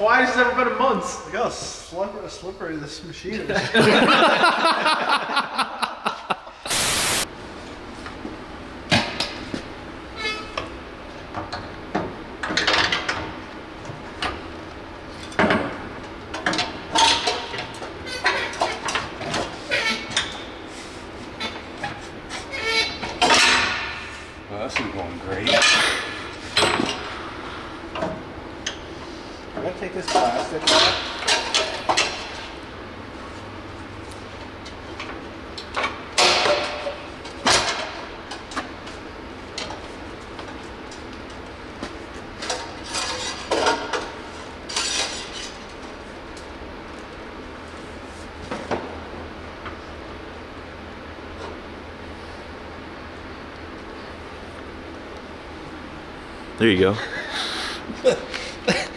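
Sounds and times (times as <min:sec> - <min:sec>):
metal tools clanking: 0:25.4 - 0:27.0.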